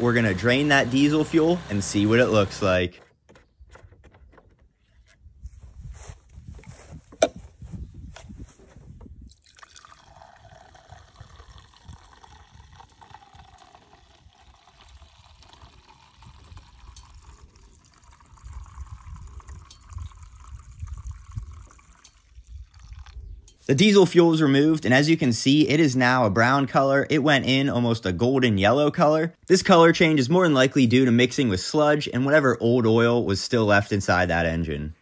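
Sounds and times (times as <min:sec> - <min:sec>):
fuel pouring into plastic jug: 0:00.0 - 0:03.0, 0:09.2 - 0:23.6.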